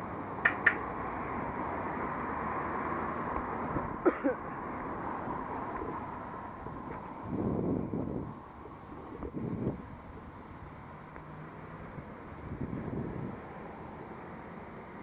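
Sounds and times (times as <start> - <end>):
wind rumbling on microphone: 4.8 - 11.2, 11.8 - 13.7.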